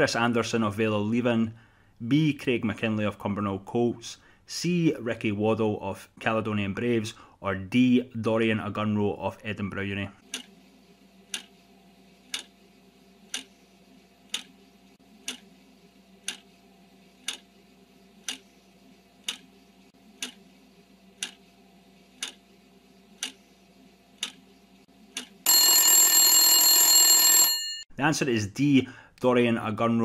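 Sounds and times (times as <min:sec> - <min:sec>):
clock ticking: 0:11.3 - 0:11.5, 0:12.3 - 0:12.5, 0:13.3 - 0:13.5, 0:14.3 - 0:14.5, 0:15.2 - 0:15.5, 0:16.2 - 0:16.5, 0:17.2 - 0:17.5, 0:18.2 - 0:18.5, 0:19.2 - 0:19.5, 0:20.2 - 0:20.4, 0:21.2 - 0:21.4, 0:22.2 - 0:22.4, 0:23.2 - 0:23.4, 0:24.2 - 0:24.4, 0:25.1 - 0:25.4
alarm bell ringing: 0:25.5 - 0:27.9.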